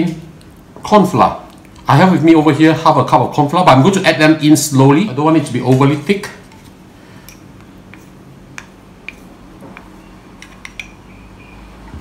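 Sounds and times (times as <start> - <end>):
chopsticks tapping bowl: 7.3 - 11.0.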